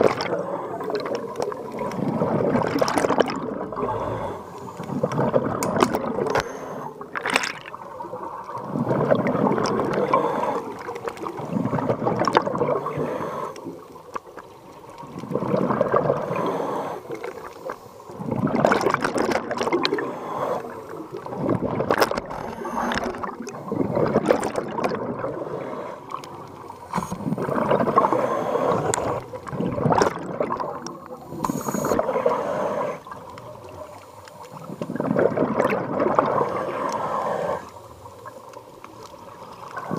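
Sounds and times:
exhaled bubbles gurgling: 0.0 - 39.9
regulator inhalations: 3.8 - 5.0, 10.0 - 11.0, 12.8 - 13.8, 16.2 - 18.1, 19.9 - 21.0, 22.3 - 24.1, 26.8 - 29.3, 31.2 - 33.2, 36.4 - 38.1.

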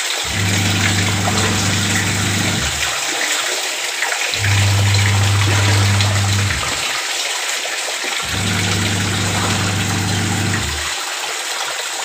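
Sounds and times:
washing machine motor humming: 0.0 - 3.1, 4.4 - 7.0, 8.2 - 11.0
water churning in wash tub: 0.0 - 7.2, 8.1 - 11.2.

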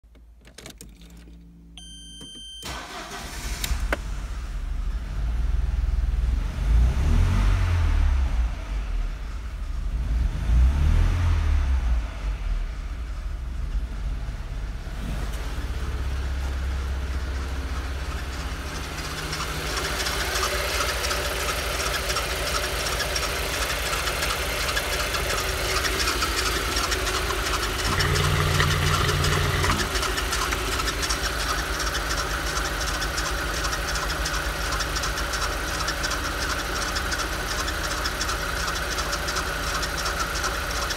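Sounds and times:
car engine idling: 1.0 - 6.8, 8.2 - 10.4, 11.6 - 40.9
fast even engine ticking: 15.4 - 40.9.

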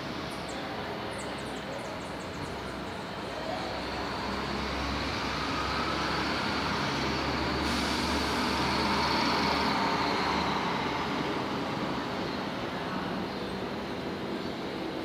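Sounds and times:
traffic rumble: 0.0 - 15.0
heavy motor vehicle driving past: 3.7 - 12.0.

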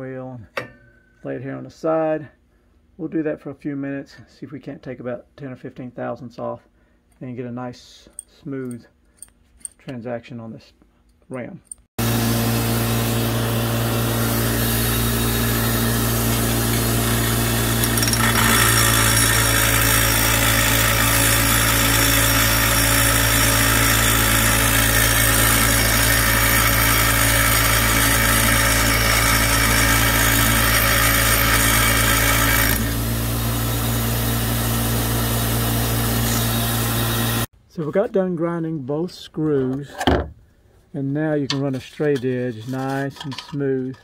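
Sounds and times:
grinding wheel motor hum: 12.0 - 37.5.

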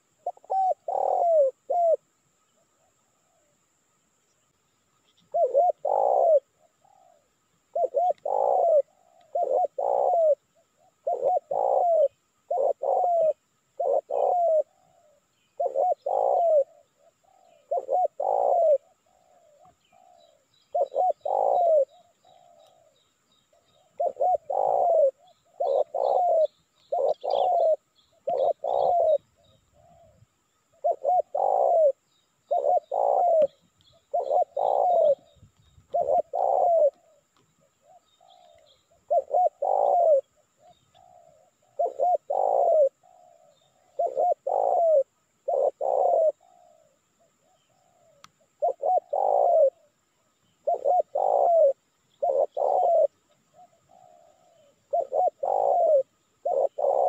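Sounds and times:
dove cooing: 0.0 - 3.6, 5.0 - 57.0
small birds chirping: 0.0 - 57.0.

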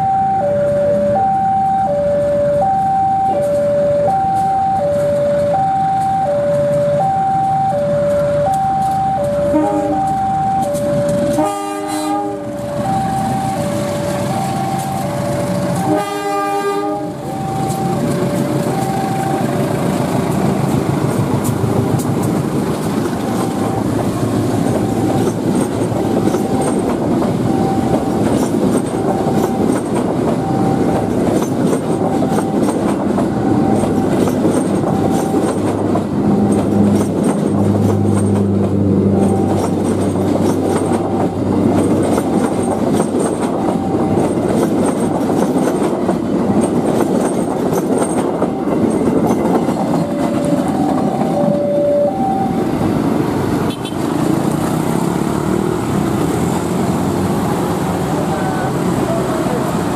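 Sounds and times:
level-crossing alarm beeps: 0.0 - 11.4, 12.6 - 16.0, 17.2 - 19.7, 23.2 - 24.0, 24.6 - 31.1, 32.0 - 35.6, 43.2 - 44.5, 48.4 - 52.8
train wheels on rails: 0.0 - 59.9.

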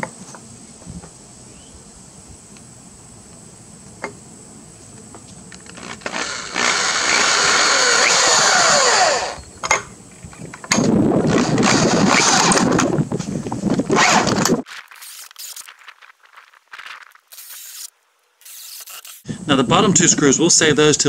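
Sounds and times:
cordless drill driving screws: 5.6 - 9.5, 11.3 - 12.8, 14.0 - 15.7, 17.3 - 19.3.

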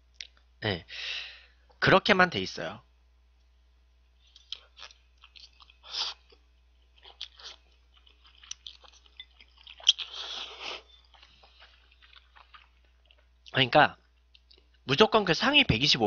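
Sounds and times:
wet chewing and mouth smacks: 4.2 - 14.8
person slurping noodles: 5.8 - 6.3, 9.8 - 11.0.

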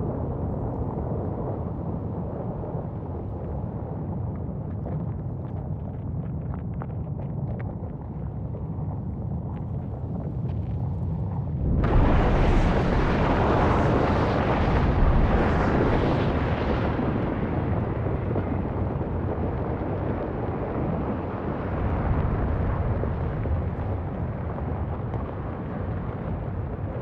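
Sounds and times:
deep volcanic rumble: 0.0 - 27.0
sudden blast: 11.6 - 17.7.

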